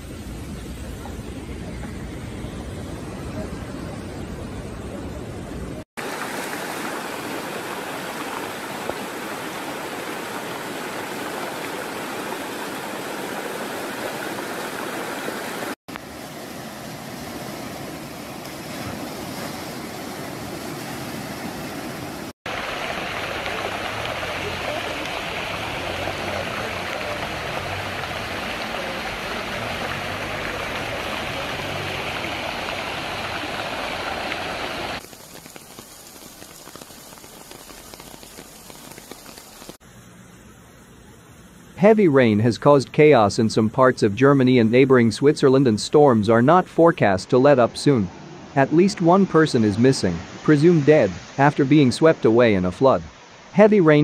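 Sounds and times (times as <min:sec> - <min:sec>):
floodwater rushing: 0:06.0 - 0:39.8, 0:41.8 - 0:54.0.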